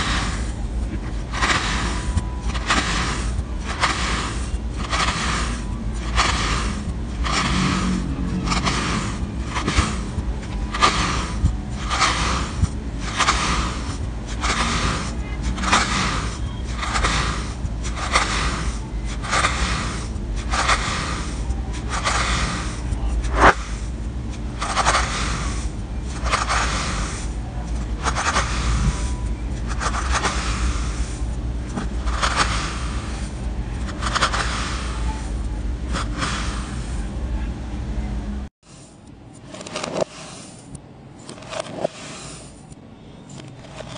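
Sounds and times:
low steady hum: 0.0 - 43.9
knife scraping through sand: 1.3 - 23.9, 32.0 - 35.2, 41.4 - 42.7.

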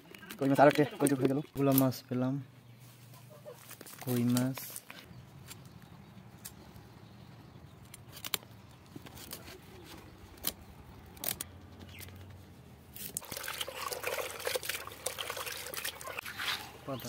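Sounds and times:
water splashing as fish washed: 13.2 - 16.8
fish scaling scrapes: 15.7 - 16.9.

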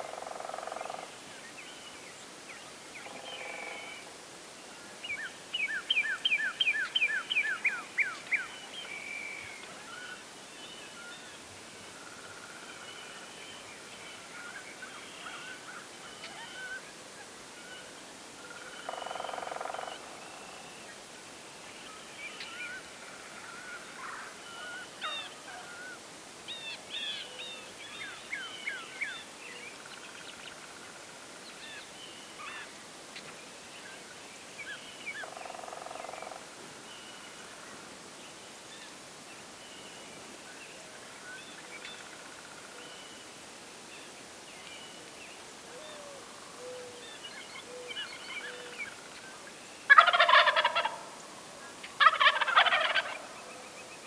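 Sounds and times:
songbirds chirping: 0.0 - 54.0
turkey gobbling: 49.9 - 51.1, 52.0 - 53.3.

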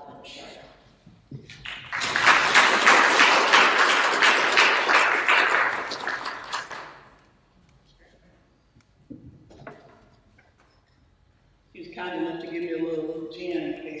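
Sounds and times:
audience applauding: 1.5 - 7.2.

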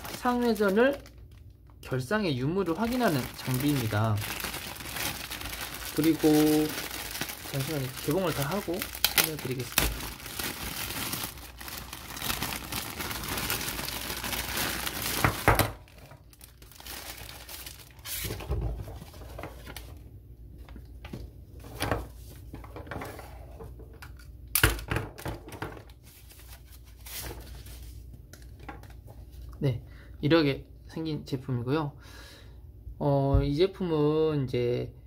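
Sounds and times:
plastic bag crinkling: 0.0 - 20.0.

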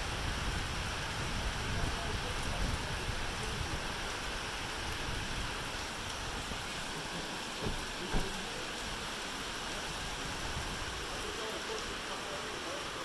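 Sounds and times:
steady rain falling: 0.0 - 13.0.

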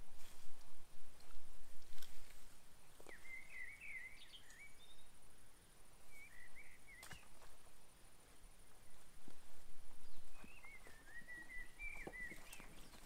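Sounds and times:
knocks and rustles of cut grass: 0.0 - 3.2
small bird twittering: 3.0 - 5.1, 10.0 - 13.0.

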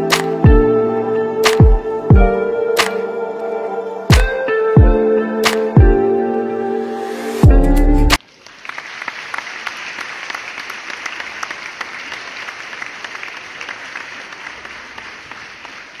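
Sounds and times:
music with low sweep: 0.0 - 8.2
crowd applauding: 8.2 - 16.0.

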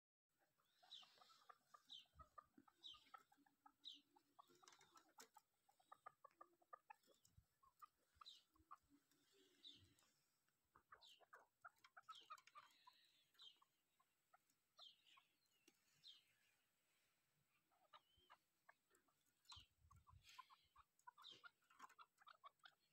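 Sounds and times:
partridge clucking: 1.0 - 8.9.

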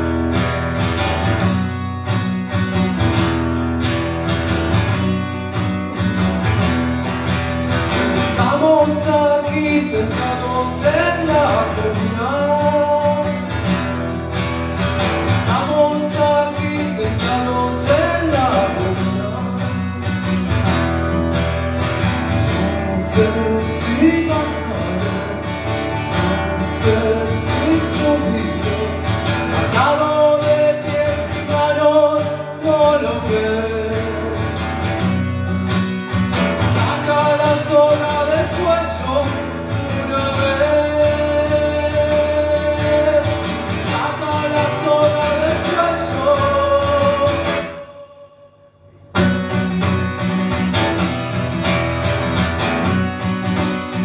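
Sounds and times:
acoustic guitar strumming: 0.0 - 54.0
man singing: 8.1 - 14.2, 15.1 - 21.2, 22.1 - 35.0, 36.4 - 49.0.

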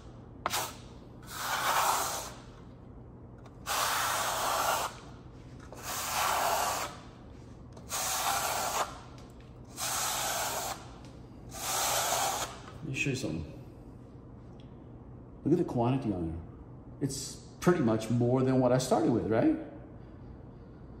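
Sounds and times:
trowel scraping wet plaster: 0.5 - 2.5, 3.6 - 5.1, 5.7 - 7.0, 7.8 - 9.0, 9.8 - 10.8.

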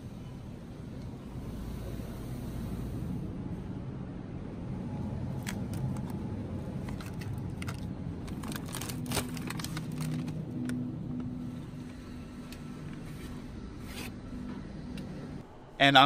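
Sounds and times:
steady low hum: 0.0 - 16.0
plastic packaging crinkling: 6.9 - 10.8.

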